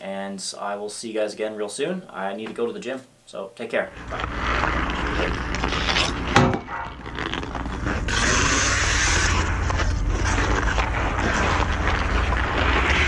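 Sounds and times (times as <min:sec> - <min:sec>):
skate blades scraping ice: 0:03.9 - 0:13.0.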